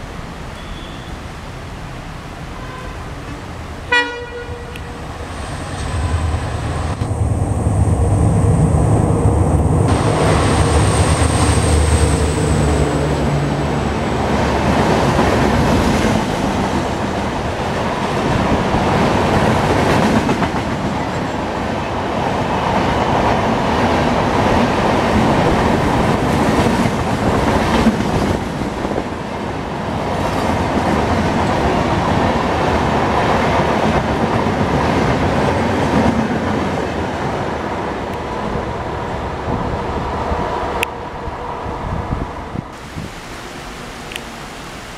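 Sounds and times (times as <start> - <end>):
train wheels rushing: 3.2 - 42.8
diesel locomotive engine throbbing: 4.7 - 14.9
wheels clickety-clack on rail joints: 14.2 - 38.3.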